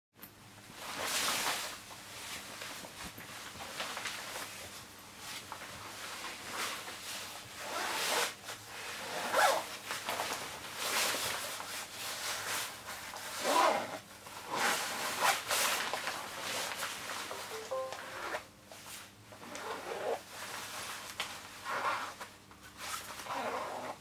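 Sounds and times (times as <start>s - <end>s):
zipper being pulled: 7.6s - 9.7s, 13.4s - 15.4s, 22.8s - 24.0s.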